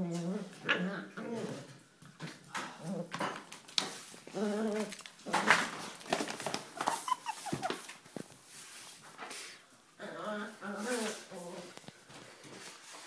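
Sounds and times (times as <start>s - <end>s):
scuffles on tile floor: 5.7s - 9.5s, 10.6s - 13.0s
dog whining: 6.8s - 7.9s.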